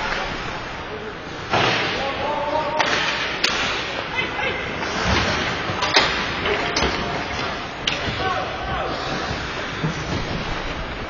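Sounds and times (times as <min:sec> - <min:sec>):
skates scraping on ice: 0:07.0 - 0:11.0.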